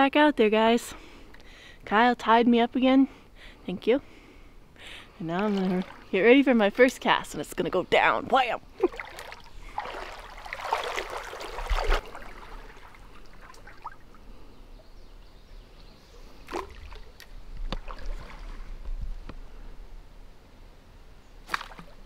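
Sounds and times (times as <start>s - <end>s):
river flowing: 8.6s - 14.5s.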